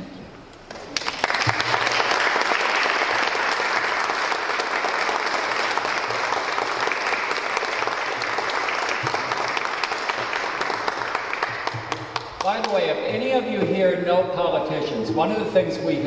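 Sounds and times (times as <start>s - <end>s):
audience applauding: 0.6s - 12.9s.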